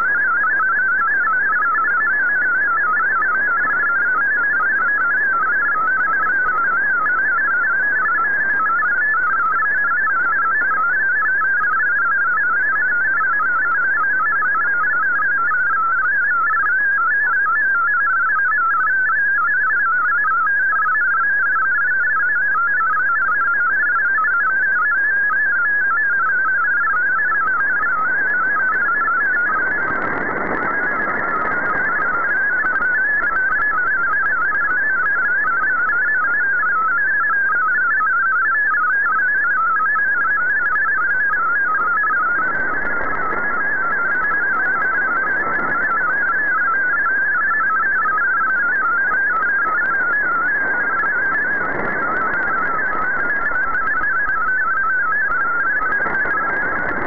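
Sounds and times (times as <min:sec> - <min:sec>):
warbling digital radio tones: 0:22.9 - 0:57.0.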